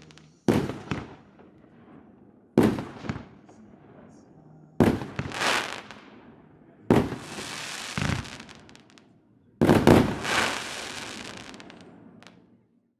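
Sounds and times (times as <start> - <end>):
hissing crackling firework tail: 0.0 - 1.4, 4.8 - 9.0, 9.6 - 12.4
fireworks bangs: 0.0 - 9.0, 9.6 - 12.4.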